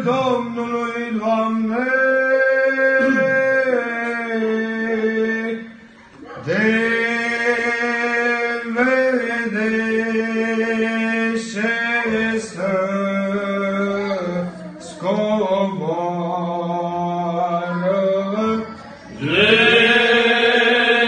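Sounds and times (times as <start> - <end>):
men singing in chorus: 6.4 - 14.2, 19.2 - 21.0.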